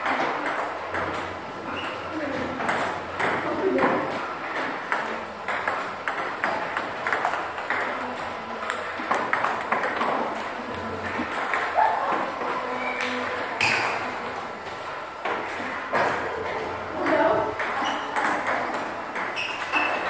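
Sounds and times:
table tennis balls clicking: 0.0s - 20.0s.

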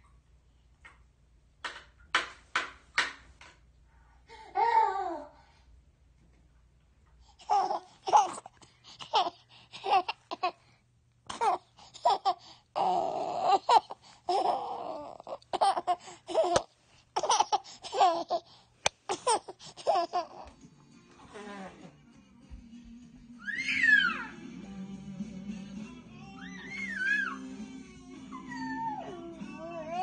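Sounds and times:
baby laughing: 7.4s - 10.6s, 11.3s - 20.5s.

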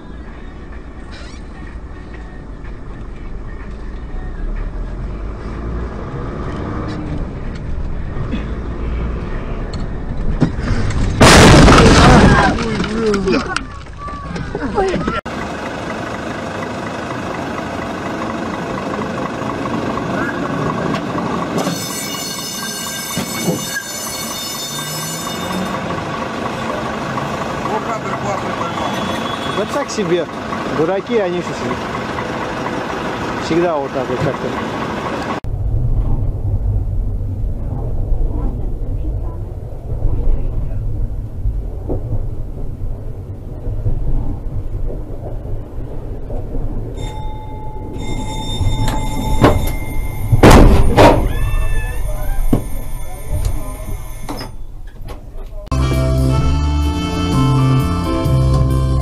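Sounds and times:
tram rumbling on rails: 0.0s - 56.1s
loud bang: 11.2s - 12.6s, 48.9s - 52.8s
tram metallic squeal: 21.5s - 26.0s, 28.3s - 29.9s, 46.9s - 55.0s
low hum: 35.4s - 51.2s.

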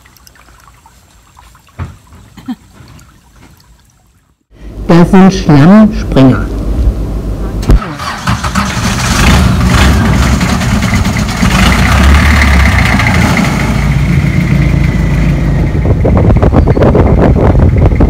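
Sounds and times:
boat engine running: 8.6s - 18.0s.

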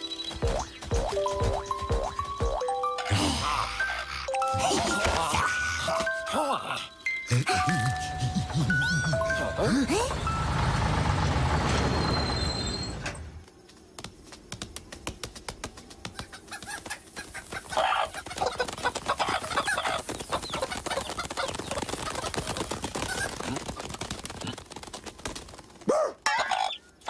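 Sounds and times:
cartoon chickens clucking: 16.1s - 24.0s.

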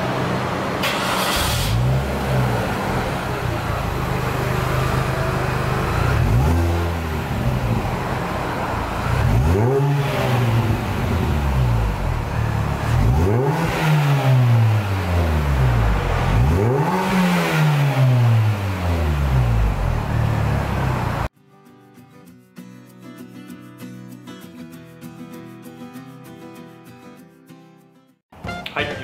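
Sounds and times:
car engine idling and revving: 0.0s - 21.3s.

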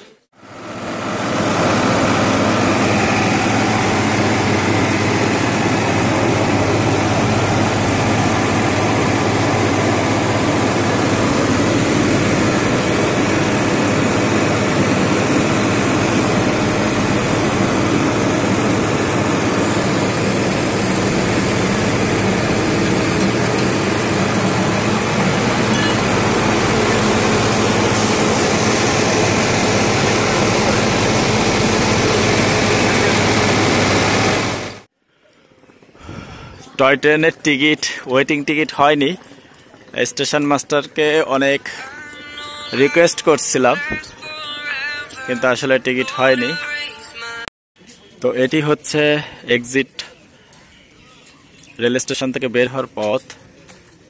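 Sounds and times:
large engine running: 0.4s - 34.9s.

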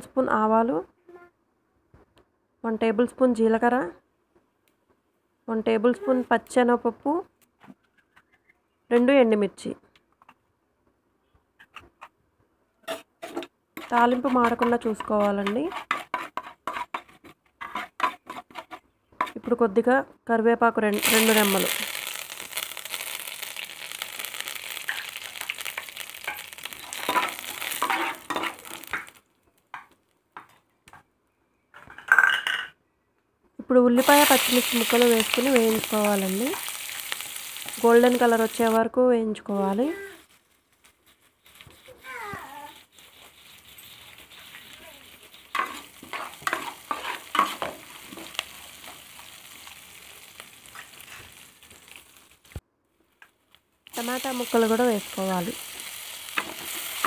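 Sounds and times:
spoon scraping metal pan: 12.8s - 19.6s, 24.8s - 29.2s, 42.7s - 49.0s
spices sizzling and crackling in oil: 12.9s - 19.4s, 20.9s - 30.0s, 34.0s - 52.6s, 53.9s - 57.0s.

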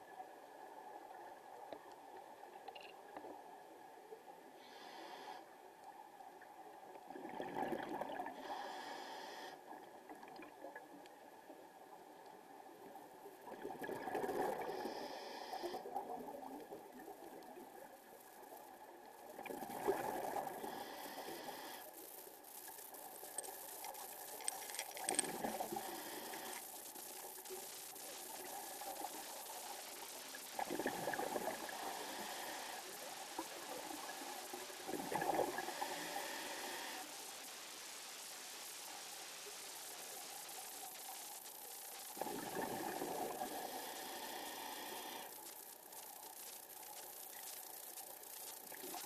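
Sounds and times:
regulator inhalation hiss: 4.6s - 5.6s, 8.2s - 9.7s, 14.4s - 16.4s, 19.9s - 24.6s, 25.2s - 38.3s, 38.9s - 49.0s
exhaled bubbles gurgling underwater: 6.6s - 8.9s, 13.2s - 17.9s, 19.2s - 21.0s, 30.5s - 36.4s, 42.1s - 44.0s.

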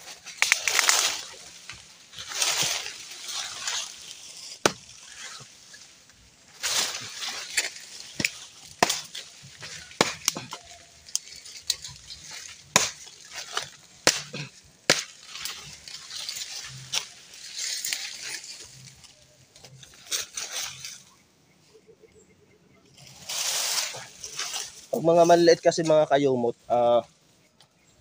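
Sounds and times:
dry sticks snapping: 0.0s - 21.0s
crackle and rustle of dry wood: 0.0s - 28.0s.

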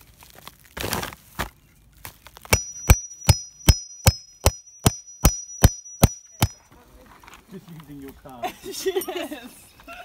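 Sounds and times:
hammer blows on metal tool: 2.5s - 6.6s.

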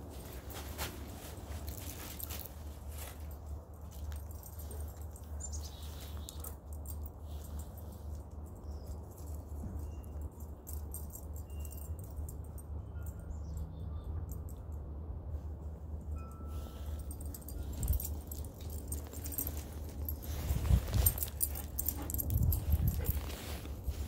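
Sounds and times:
steady low rumble: 14.3s - 24.0s.

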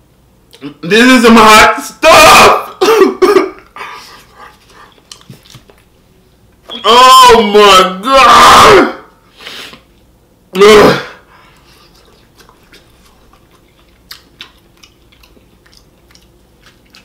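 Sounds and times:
man coughing: 2.7s - 3.7s
chewing: 4.3s - 5.8s, 11.5s - 17.0s.

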